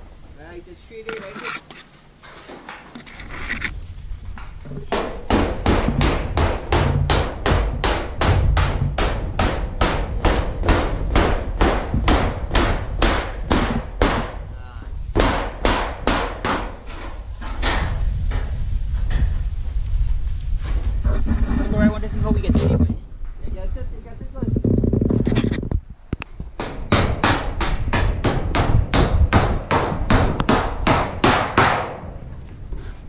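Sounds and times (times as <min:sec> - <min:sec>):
hammer striking metal roofing: 0:04.8 - 0:14.4, 0:15.1 - 0:19.3, 0:26.6 - 0:32.2.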